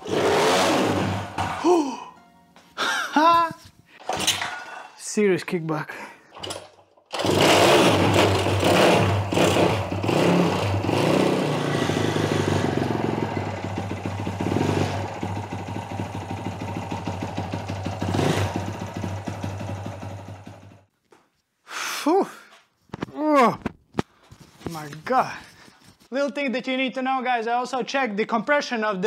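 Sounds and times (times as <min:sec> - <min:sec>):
small engine running unevenly: 0:06.4 - 0:20.7.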